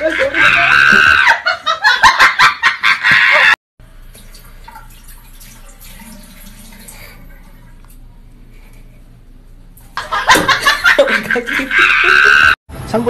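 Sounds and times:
loud pulsing laughter: 0.0 - 3.6, 10.0 - 12.6.

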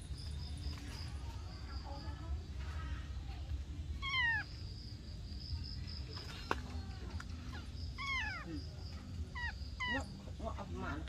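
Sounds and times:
high insect trill: 0.0 - 11.0
kitten mewing: 8.0 - 8.6.

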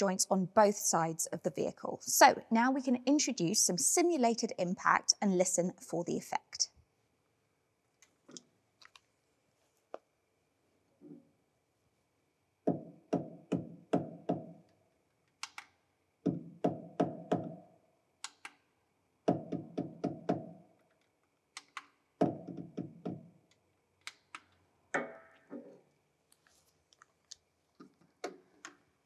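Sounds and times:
mallet knocking on car suspension: 12.7 - 14.6, 16.2 - 17.6, 19.3 - 20.6, 22.2 - 23.3.

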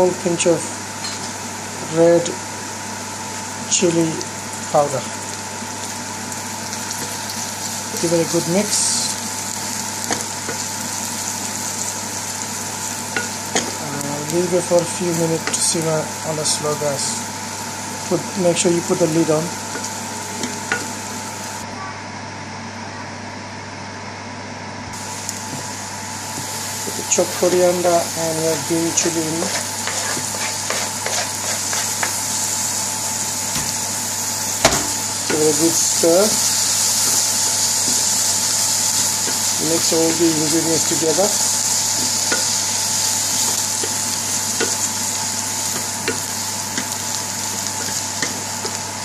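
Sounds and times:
vegetables sizzling in oil: 0.0 - 21.6, 24.9 - 49.0
steady hiss: 34.2 - 48.9.

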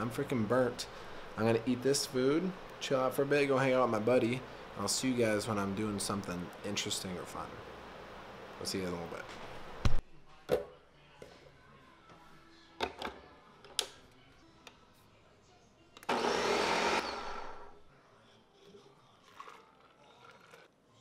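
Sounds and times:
blender running: 16.0 - 17.8.

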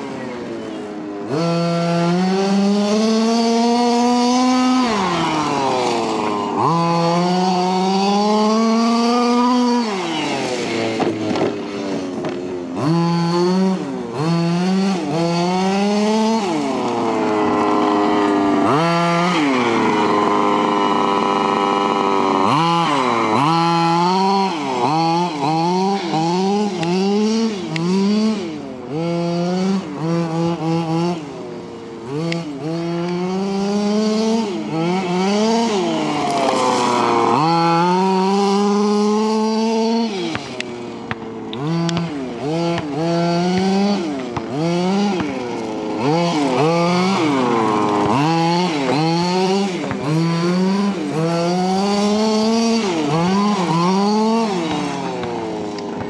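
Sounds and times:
model truck engine revving: 0.0 - 56.0.

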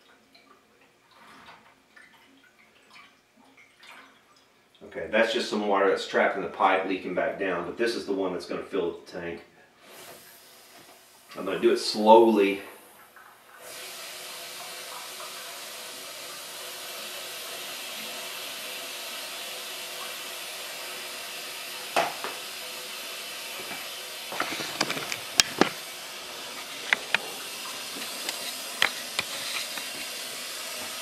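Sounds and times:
water rushing into tank: 9.8 - 31.0.

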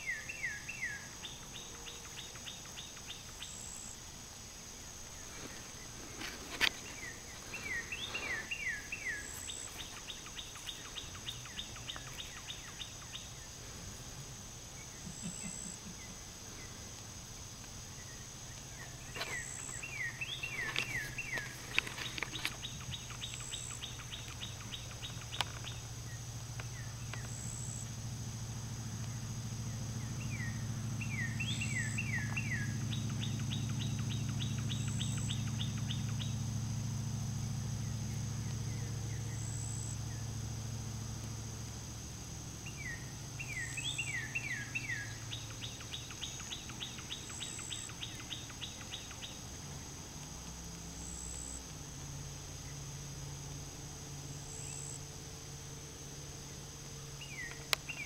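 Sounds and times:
songbird singing with trill: 0.0 - 3.9, 5.1 - 13.5, 17.9 - 27.9, 29.0 - 36.8, 37.7 - 40.5, 42.6 - 50.0, 56.4 - 58.0
high insect drone: 0.0 - 58.0
low steady hum: 0.0 - 58.0
short insect chirps: 0.0 - 58.0.

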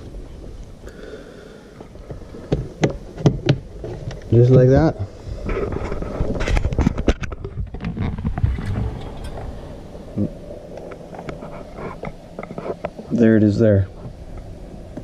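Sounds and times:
rustling: 1.8 - 15.0.

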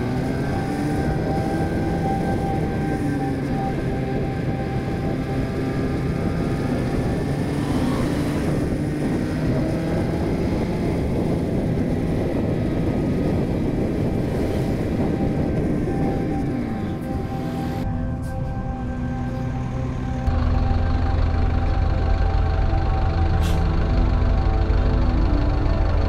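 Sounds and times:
wind rushing over microphone: 0.0 - 20.0
motorcycle engine running: 19.7 - 26.0.

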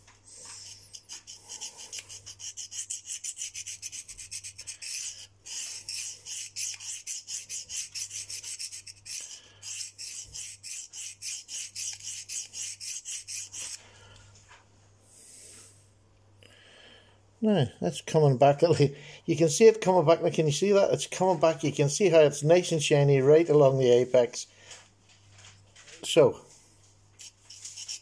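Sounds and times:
knife scraping on sharpening stone: 0.4 - 13.8, 27.2 - 28.0.

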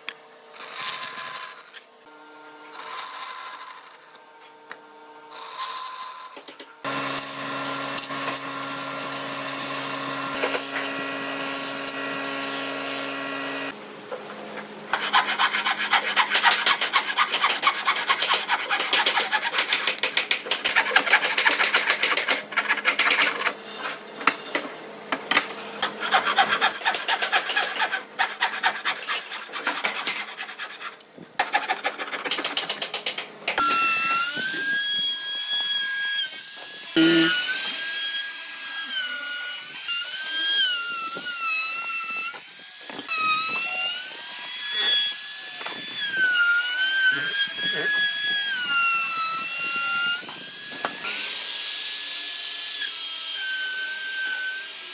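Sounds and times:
power tool whine: 5.3 - 13.8, 33.6 - 54.9
bandsaw cutting wood: 6.8 - 13.8, 14.9 - 23.6, 25.4 - 32.9, 33.6 - 54.9
hand saw cutting wood: 6.8 - 13.8, 14.9 - 51.4.

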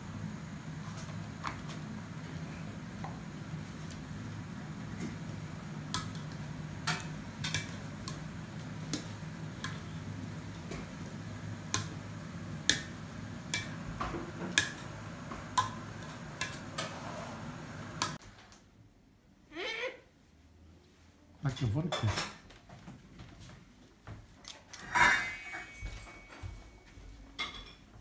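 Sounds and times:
steady low hum: 0.0 - 18.2.

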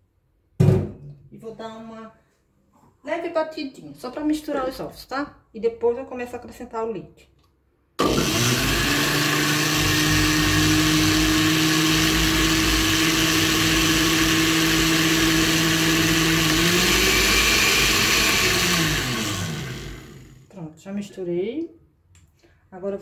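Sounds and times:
blender motor running: 8.0 - 20.5.

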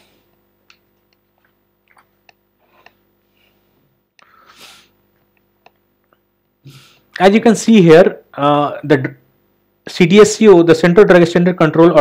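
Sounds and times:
soft breath: 2.6 - 5.0.

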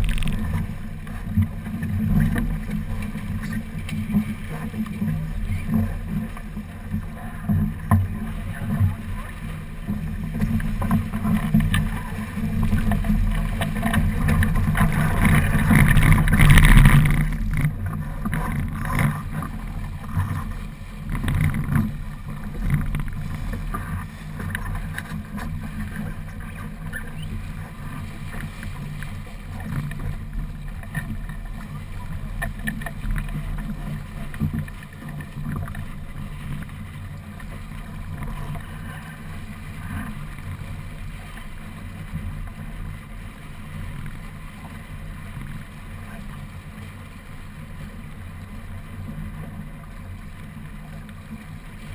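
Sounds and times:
wind buffeting microphone: 0.0 - 33.9
water rushing along hull: 0.0 - 51.9.

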